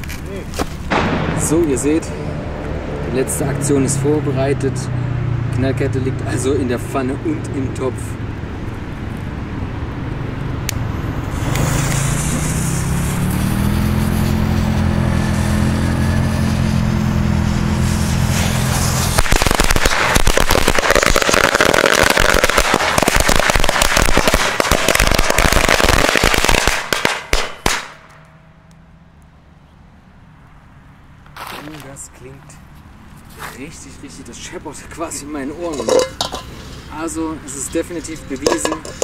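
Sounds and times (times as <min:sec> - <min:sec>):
firecrackers banging in metal pan: 0:18.1 - 0:28.0, 0:35.6 - 0:36.9, 0:37.6 - 0:39.0.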